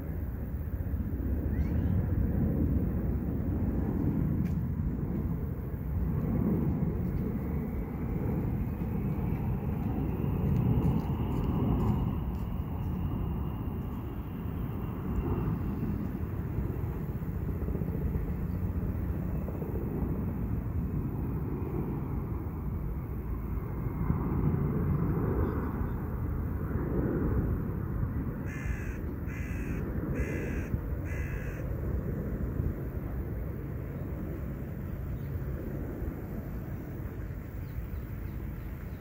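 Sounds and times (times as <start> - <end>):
bird calling: 28.5 - 31.6.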